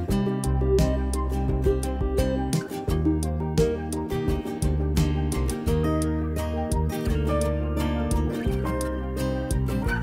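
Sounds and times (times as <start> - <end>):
plucked guitar notes: 0.0 - 10.0
steady bass line: 0.0 - 10.0.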